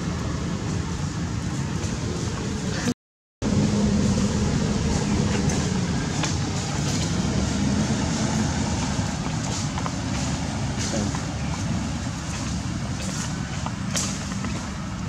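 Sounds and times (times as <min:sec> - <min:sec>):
steady rumbling: 0:00.0 - 0:15.0
low hum: 0:03.4 - 0:09.2.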